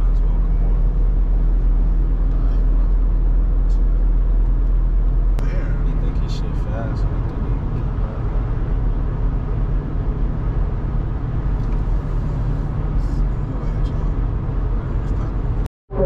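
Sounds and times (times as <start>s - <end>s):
engine drone: 0.0s - 16.0s.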